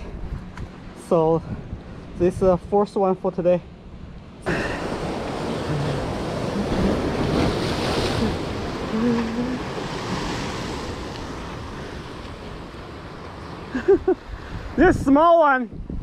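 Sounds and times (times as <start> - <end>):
wind buffeting microphone: 0.0 - 2.9, 4.8 - 16.0
surf breaking over rocks: 4.4 - 14.1.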